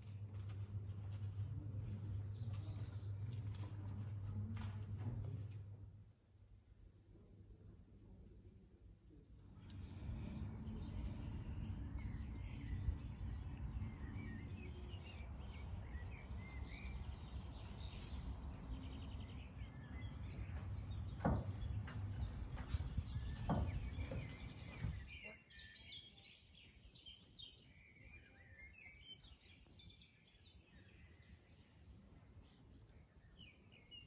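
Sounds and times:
small birds chirping: 0:00.0 - 0:05.8, 0:09.4 - 0:34.0
wind rumbling on microphone: 0:09.8 - 0:25.2.

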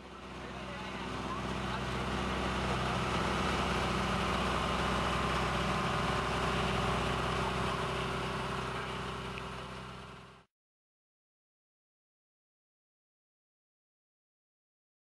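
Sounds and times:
boat engine running: 0:00.0 - 0:10.5.

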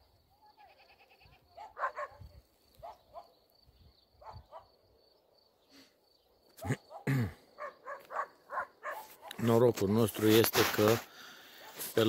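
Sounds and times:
farm animal calls: 0:00.4 - 0:02.2.

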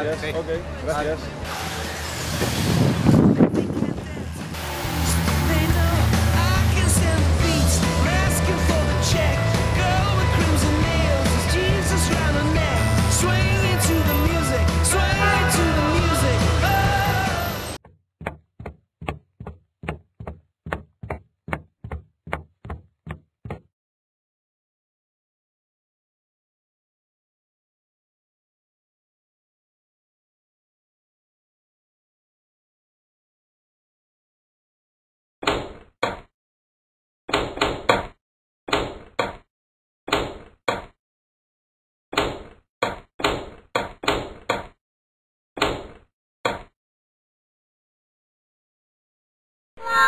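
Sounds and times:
cartoon knocking footsteps: 0:17.8 - 0:23.7, 0:42.2 - 0:44.8.

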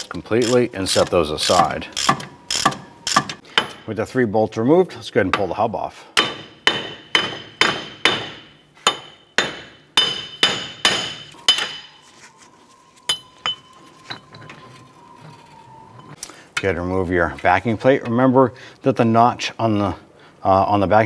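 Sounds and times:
hammer striking metal: 0:02.0 - 0:03.9, 0:06.2 - 0:12.0, 0:13.1 - 0:13.8.

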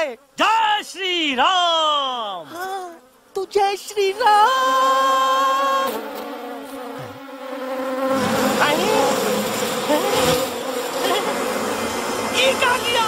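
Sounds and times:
bees buzzing: 0:02.4 - 0:13.0.

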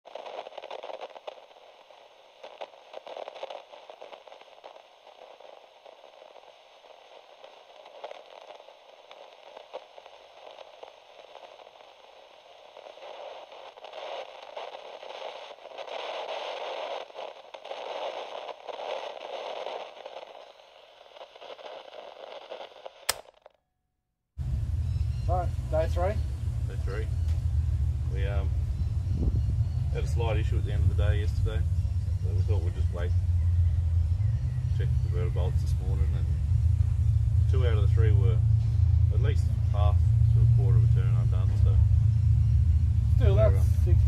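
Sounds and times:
crackling static: 0:00.0 - 0:23.6, 0:24.4 - 0:44.0
sharp click: 0:23.1 - 0:23.6.

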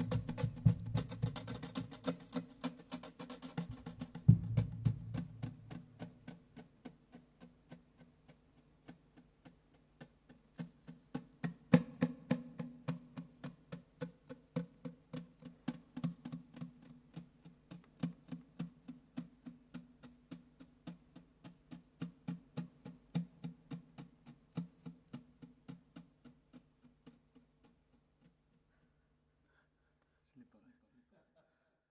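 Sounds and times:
sparse percussive music: 0:00.0 - 0:06.6
heavy percussive hit: 0:03.7 - 0:05.7.

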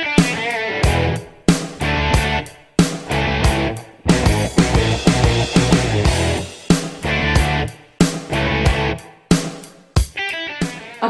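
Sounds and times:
rock music with electric guitar: 0:00.0 - 0:11.0.

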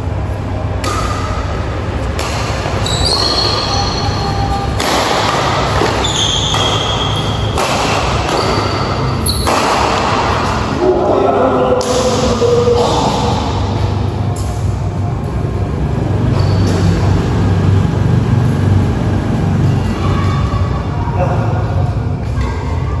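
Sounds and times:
steady low hum: 0:00.0 - 0:23.0
shuttlecock hits: 0:00.8 - 0:03.9, 0:04.7 - 0:10.7
shoe squeaks: 0:02.7 - 0:04.8, 0:05.5 - 0:07.6, 0:08.2 - 0:09.6, 0:16.2 - 0:17.2.

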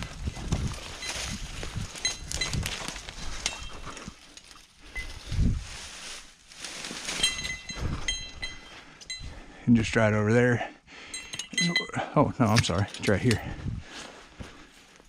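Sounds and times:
footsteps through dry leaves: 0:00.0 - 0:08.8
metal gear clinking: 0:00.9 - 0:05.2, 0:07.2 - 0:09.3, 0:11.1 - 0:13.4.

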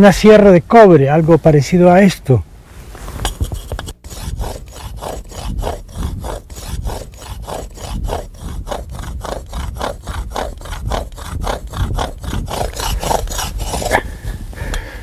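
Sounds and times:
saw blade rasping on stone: 0:03.2 - 0:14.1.

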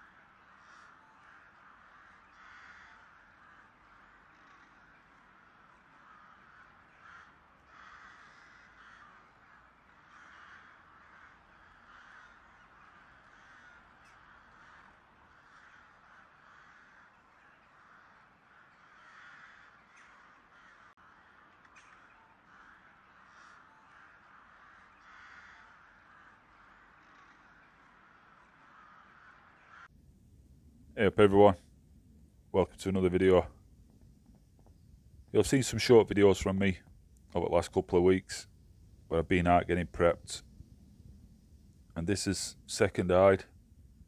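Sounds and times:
faint crows cawing: 0:00.0 - 0:30.0, 0:30.7 - 0:44.0.

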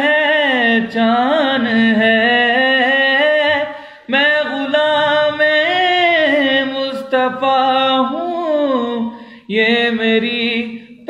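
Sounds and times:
person singing unaccompanied: 0:00.0 - 0:11.0.

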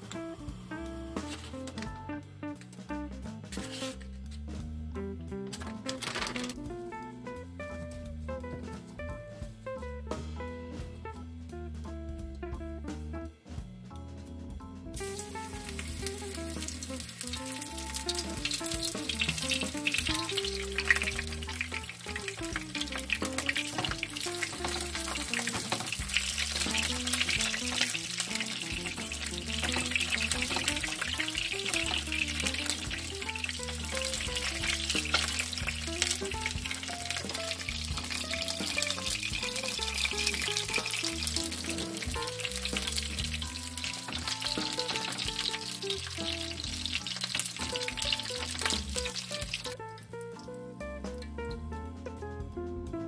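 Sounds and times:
light background music: 0:00.0 - 0:53.0
shrimp sizzling in oil: 0:15.0 - 0:49.8.

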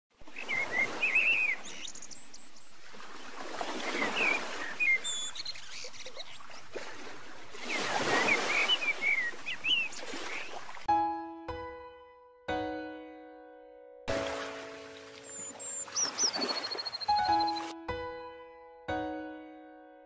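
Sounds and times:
songbirds chirping: 0:00.2 - 0:10.9, 0:14.3 - 0:17.7.

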